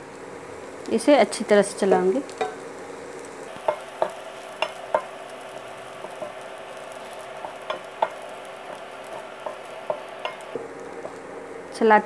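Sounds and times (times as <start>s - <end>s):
bread frying and sizzling: 0.0s - 12.0s
spatula knocking against pan: 3.6s - 5.1s, 7.4s - 8.2s.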